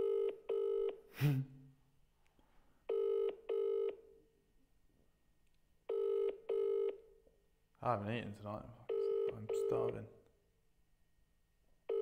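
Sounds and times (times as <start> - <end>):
phone ringback tone: 0.0 - 1.0, 2.9 - 4.0, 5.9 - 7.0, 8.9 - 10.0.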